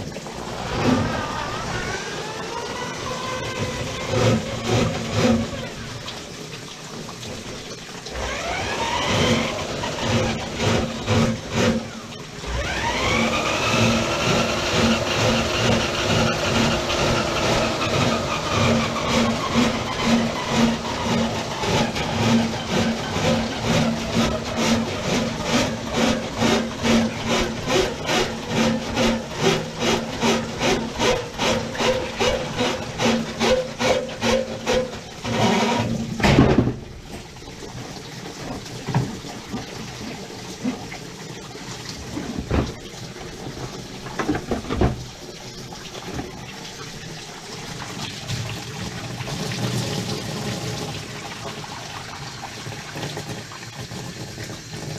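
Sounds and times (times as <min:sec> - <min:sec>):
drain snake motor whining: 0:00.0 - 0:06.0, 0:08.1 - 0:36.0.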